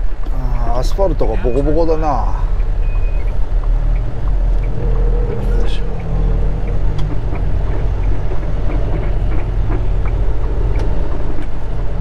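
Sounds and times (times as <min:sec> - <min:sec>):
truck diesel engine humming: 0:00.0 - 0:12.0
knocks and rattles: 0:02.6 - 0:12.0.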